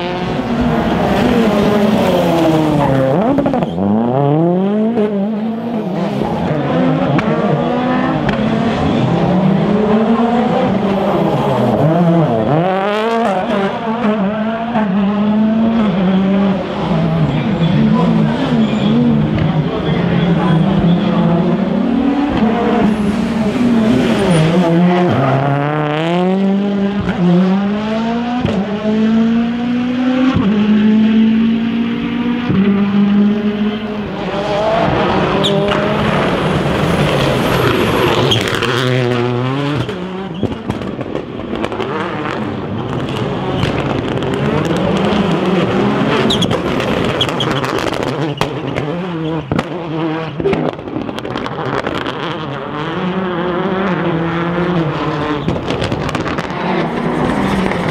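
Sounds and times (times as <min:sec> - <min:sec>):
rally car engines accelerating: 0:00.0 - 0:57.9.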